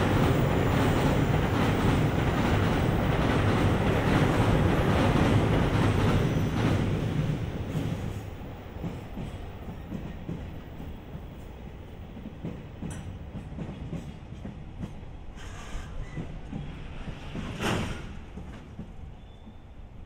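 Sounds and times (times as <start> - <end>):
train wagons rolling over rails: 0.0 - 19.9.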